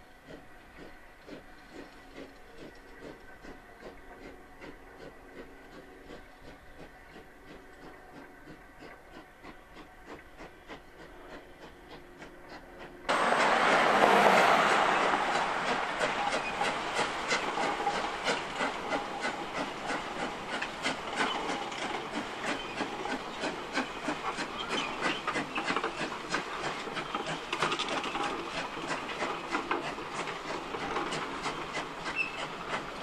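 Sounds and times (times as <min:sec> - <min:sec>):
steam locomotive exhaust chuffs: 0:00.0 - 0:33.0
wheels clicking over rail joints: 0:07.1 - 0:33.0.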